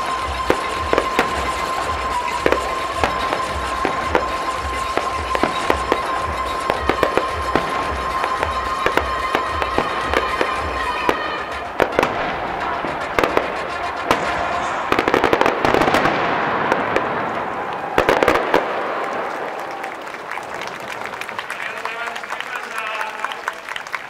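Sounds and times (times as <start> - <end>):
show music with steady beat: 0.0 - 16.1
fireworks bangs and crackles: 0.0 - 23.9.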